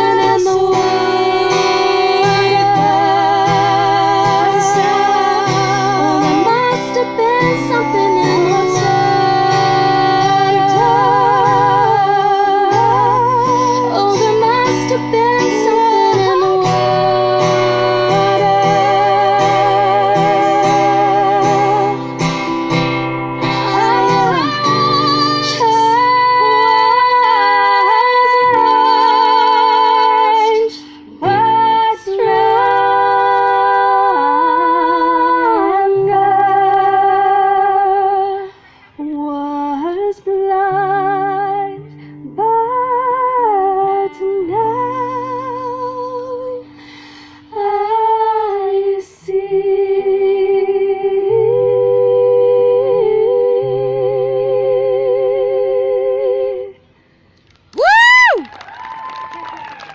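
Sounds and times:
women singing in harmony: 0.0 - 22.8, 23.4 - 56.9
strummed acoustic guitar: 0.0 - 38.7.

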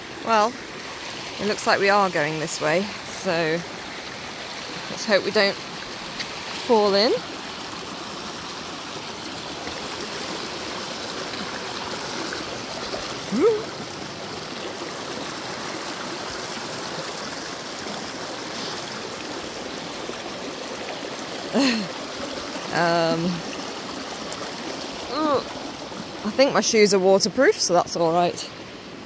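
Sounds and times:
stream running over stones: 0.0 - 29.0
person's short voiced sound: 13.3 - 13.7.

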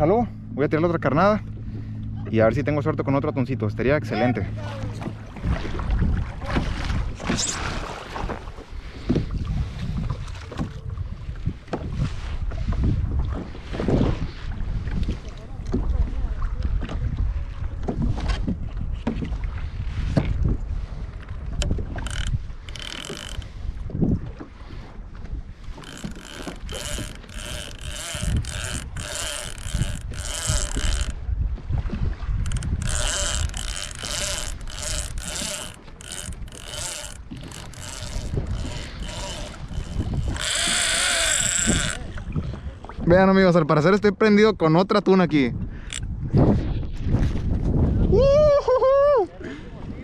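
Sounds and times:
water slapping against hull: 0.0 - 44.3, 45.0 - 48.2
wind rumbling on microphone: 0.0 - 50.0
small mechanism whirring: 22.0 - 23.5, 25.7 - 31.2, 32.4 - 42.0.

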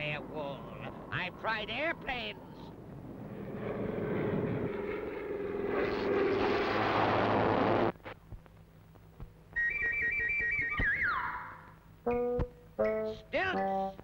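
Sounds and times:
cartoon propeller plane engine droning: 0.0 - 8.0, 9.5 - 11.8
electric zapping crackle: 5.8 - 8.0.

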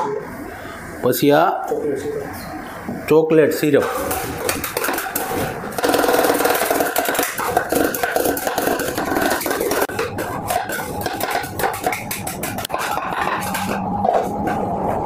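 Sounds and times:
metal spatulas tapping and scraping: 6.2 - 13.8.

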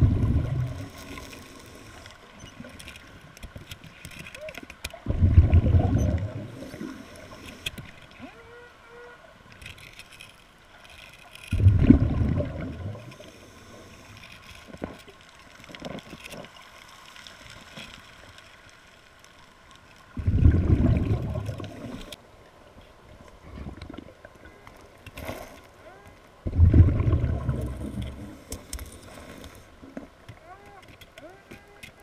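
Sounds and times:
faint clicks and ticks: 0.2 - 8.3, 9.5 - 22.2, 23.2 - 32.0
diver's breath bubbling underwater: 5.1 - 7.0, 11.6 - 13.1, 20.2 - 22.0, 26.5 - 28.4.

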